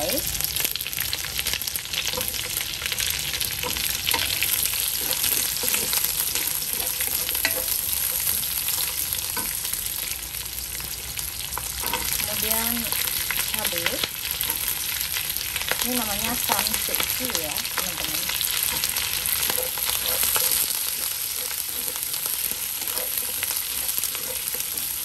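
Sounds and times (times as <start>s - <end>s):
onions and garlic frying in oil: 0.0s - 25.0s
wooden spatula scraping and tapping: 2.1s - 9.6s, 11.6s - 12.2s, 18.0s - 25.0s.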